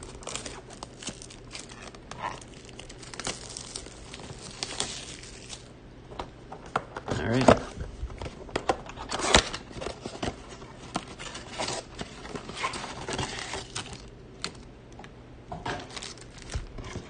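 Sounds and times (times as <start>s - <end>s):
packs rustling and sliding: 15.9s - 17.0s.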